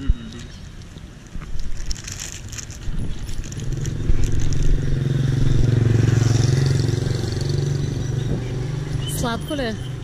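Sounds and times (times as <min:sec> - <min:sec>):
paper wrapper crinkling: 0:00.6 - 0:04.7.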